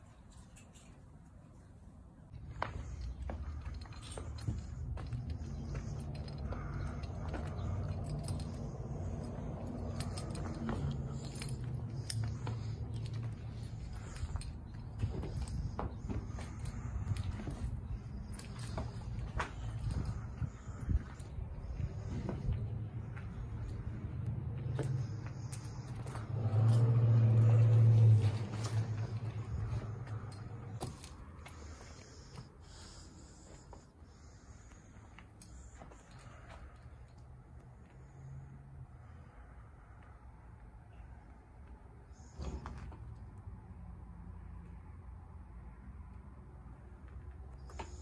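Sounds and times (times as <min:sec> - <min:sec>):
steady low rumble: 0:02.3 - 0:33.4
footsteps crunching over rubble: 0:02.3 - 0:33.9.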